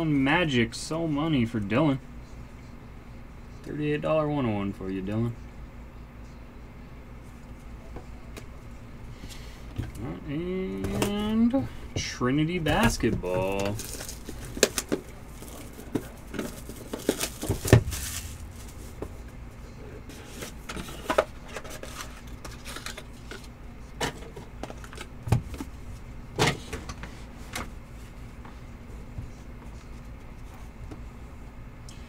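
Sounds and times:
low steady hum: 0.0s - 32.0s
hands handling cardboard box: 12.7s - 19.2s.

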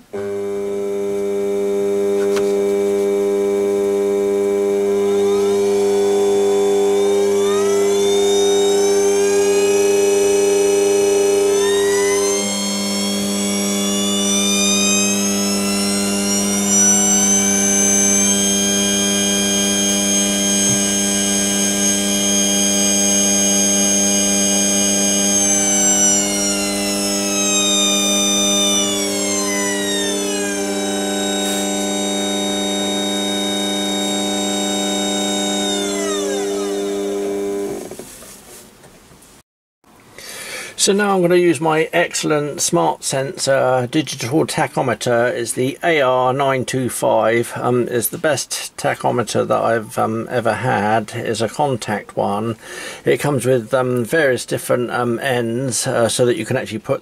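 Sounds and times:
electric motor whine: 0.0s - 38.1s.

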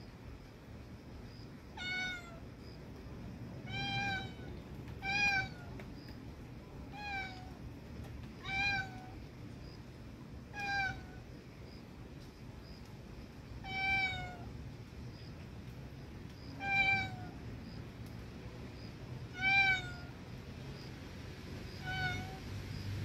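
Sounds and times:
cat meowing: 1.8s - 2.4s, 3.6s - 5.8s, 6.9s - 7.6s, 8.4s - 9.2s, 10.5s - 11.2s, 13.6s - 14.4s, 16.6s - 17.3s, 19.3s - 20.2s, 21.8s - 22.4s.

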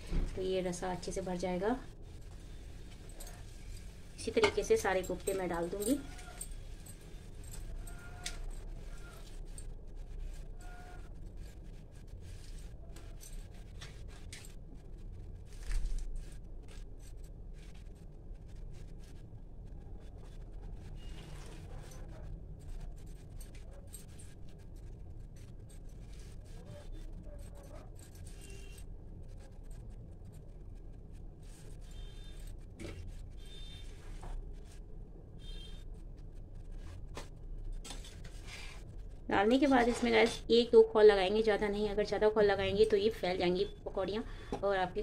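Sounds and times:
glass bangles clinking: 3.1s - 9.7s.

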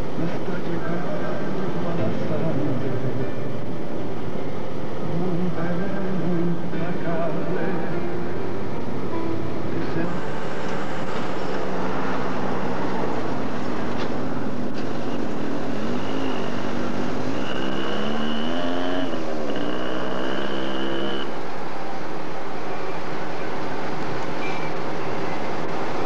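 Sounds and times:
street traffic: 0.0s - 26.0s
engine pitch rising and falling: 15.5s - 21.4s.

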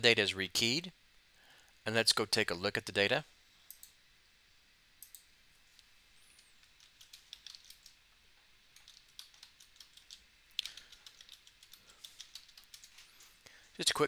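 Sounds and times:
faint keyboard keystrokes: 6.8s - 8.0s.

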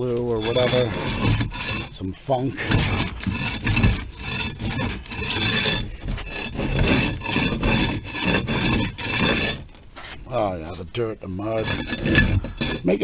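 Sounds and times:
scraper blade rasping on floor: 2.6s - 9.6s.

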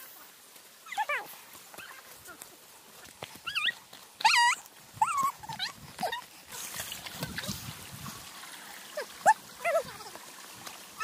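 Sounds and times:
dog whining and yipping: 0.8s - 2.1s, 3.4s - 6.3s.

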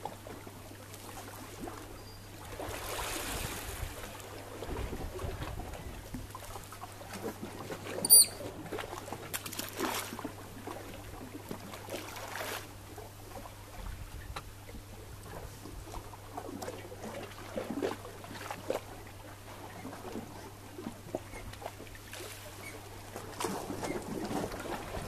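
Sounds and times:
water lapping against rocks: 2.5s - 14.0s, 15.0s - 25.0s
high-pitched whistle: 8.0s - 8.4s.

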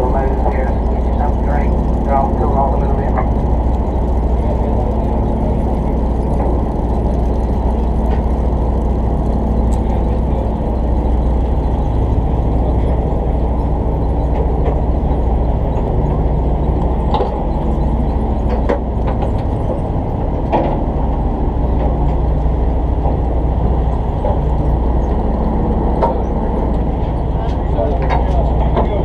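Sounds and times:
boat engine humming: 0.0s - 29.0s.

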